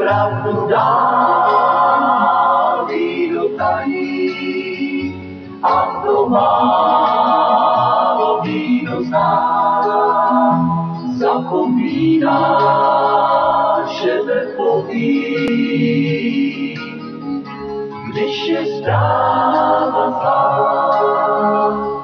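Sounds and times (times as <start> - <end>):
man singing: 0.0 - 7.2, 13.8 - 17.1, 18.1 - 19.5.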